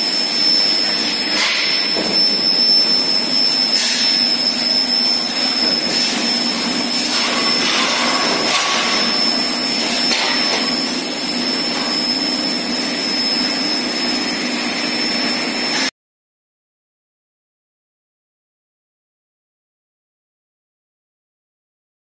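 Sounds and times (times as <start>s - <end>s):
high-pitched whine: 0.0s - 15.9s
industrial hiss and hum: 0.0s - 15.9s.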